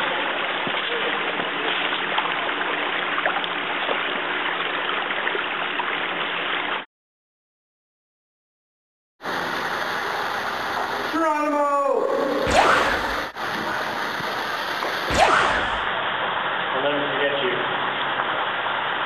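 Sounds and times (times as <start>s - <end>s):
water rushing in metal culvert: 0.0s - 6.8s, 12.4s - 19.0s
steady noise: 9.3s - 16.2s.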